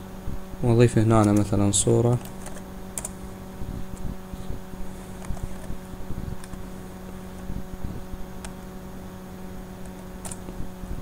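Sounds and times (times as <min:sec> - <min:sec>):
low hum: 0:00.0 - 0:11.0
keyboard keystrokes: 0:01.2 - 0:01.5, 0:02.2 - 0:03.2, 0:09.8 - 0:10.5.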